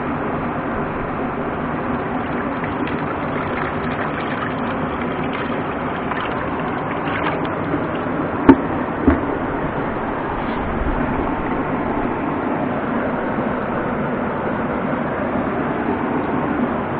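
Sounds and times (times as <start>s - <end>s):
stream water over rocks: 0.7s - 12.2s
light water splashing: 2.0s - 9.3s.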